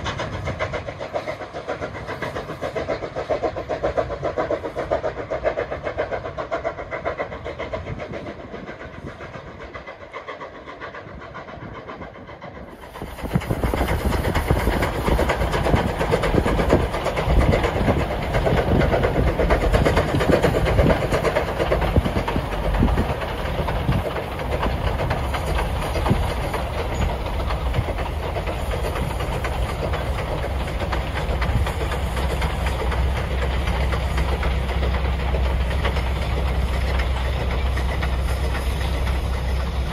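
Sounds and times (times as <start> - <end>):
distant steam train: 0.0 - 39.9.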